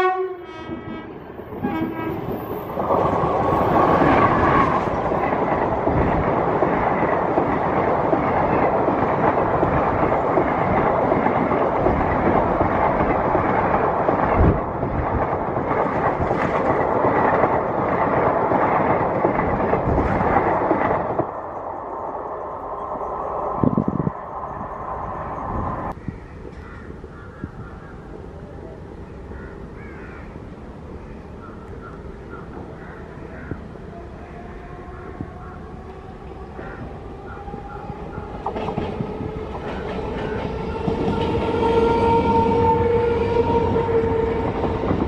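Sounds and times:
train horn blast: 0:00.0 - 0:02.4, 0:40.6 - 0:44.6
train wheels rushing on rails: 0:00.0 - 0:26.6, 0:30.8 - 0:45.0
wheels clacking over rail joints: 0:01.5 - 0:21.4, 0:36.6 - 0:45.0.

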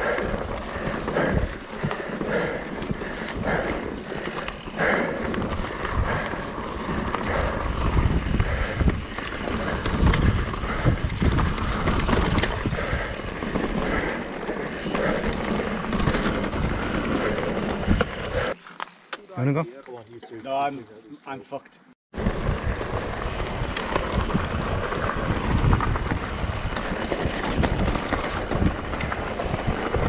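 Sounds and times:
wind noise on microphone: 0:00.0 - 0:18.6, 0:22.1 - 0:30.0
bike knocks and rattles: 0:22.2 - 0:30.0.

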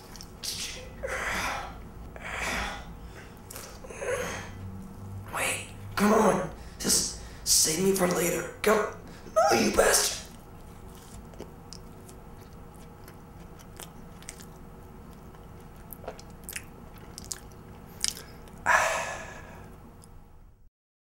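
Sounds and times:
person chewing: 0:00.0 - 0:00.6, 0:03.0 - 0:03.9, 0:10.2 - 0:18.6.

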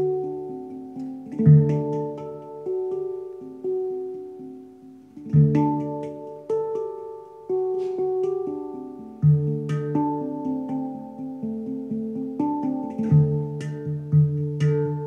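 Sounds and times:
handpan melody: 0:00.0 - 0:15.0
deep low handpan note: 0:05.2 - 0:15.0.

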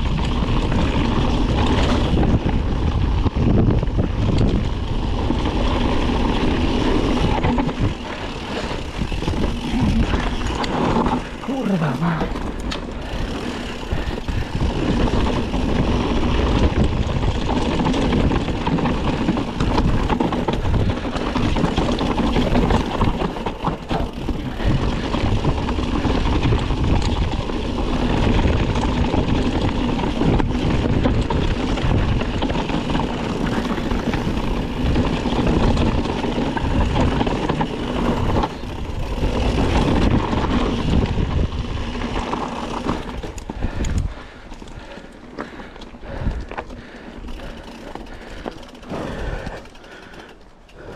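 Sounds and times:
wind on microphone: 0:00.0 - 0:08.2, 0:13.1 - 0:23.2, 0:23.9 - 0:42.2
bike tyres rolling on gravel: 0:00.0 - 0:50.9.

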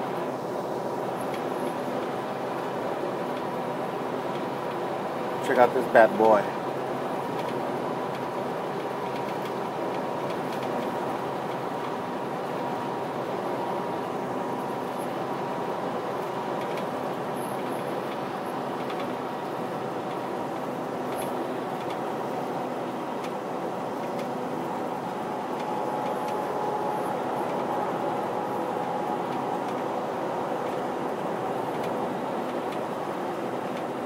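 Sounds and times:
truck engine and road noise: 0:00.0 - 0:34.0
faint steady hum: 0:11.8 - 0:34.0.

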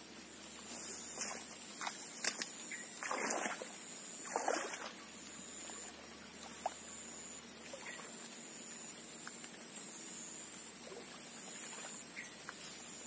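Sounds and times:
fish splashing in water: 0:01.2 - 0:06.9.

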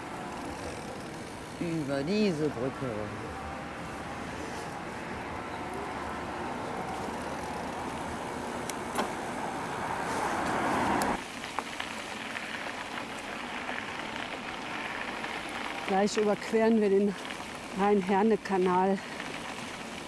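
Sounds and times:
motor vehicle passing: 0:00.0 - 0:11.3
traffic rushing hiss: 0:00.0 - 0:13.8.

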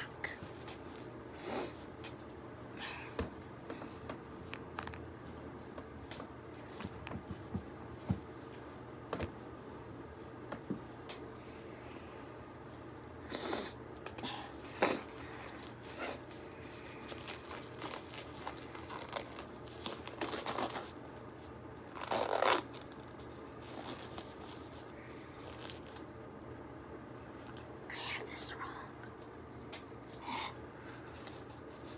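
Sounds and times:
disposable gloves rustling: 0:15.1 - 0:26.2.

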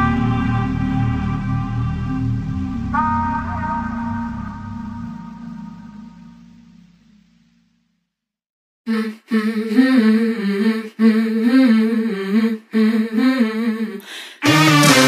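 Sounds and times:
music track with a beat: 0:14.4 - 0:15.0.

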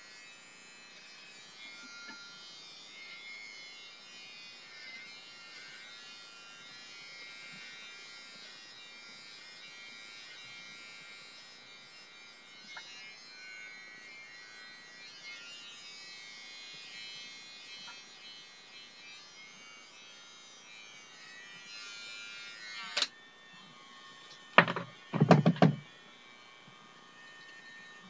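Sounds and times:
electric trimmer buzzing: 0:00.0 - 0:28.0
knocks of trimmer handling: 0:24.6 - 0:25.8.

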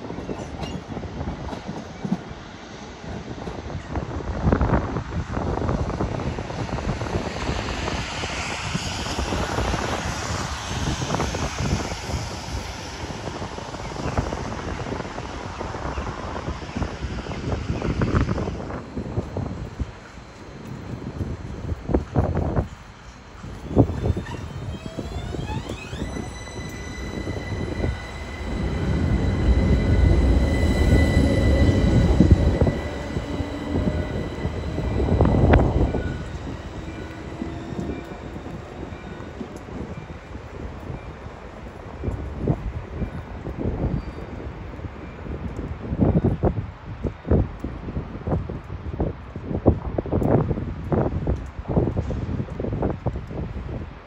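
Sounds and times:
tram electric whine: 0:00.0 - 0:49.6
tram wheels rumbling on rails: 0:00.0 - 0:54.0
wind buffeting microphone: 0:00.0 - 0:54.0
bus passing: 0:17.2 - 0:42.5.

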